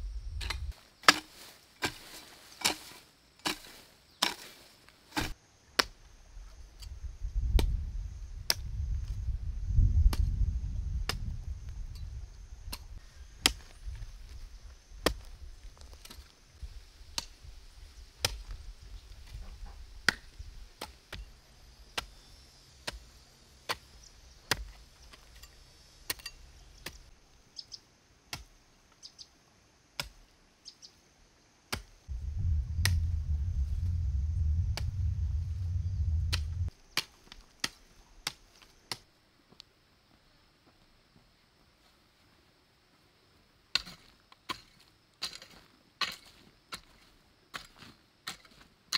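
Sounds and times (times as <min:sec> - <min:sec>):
hoe chopping dry soil: 0:00.4 - 0:06.0, 0:13.4 - 0:13.8, 0:15.0 - 0:16.3, 0:18.2 - 0:18.6, 0:19.2 - 0:21.3, 0:22.8 - 0:25.5, 0:28.3 - 0:28.6, 0:30.0 - 0:30.3, 0:43.7 - 0:48.7
low rumble: 0:32.1 - 0:36.7.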